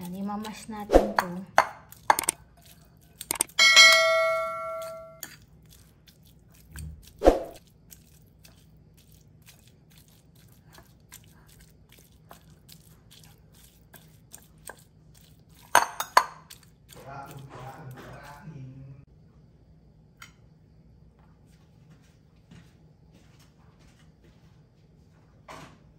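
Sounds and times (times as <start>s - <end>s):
fork tapping and scraping glass bowl: 1.2s - 2.4s, 3.2s - 5.4s, 15.6s - 16.7s
bell-like chime: 3.6s - 5.2s.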